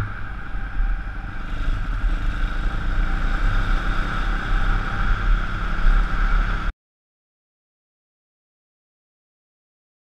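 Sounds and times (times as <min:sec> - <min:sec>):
motorbike engine running: 0:00.0 - 0:06.7.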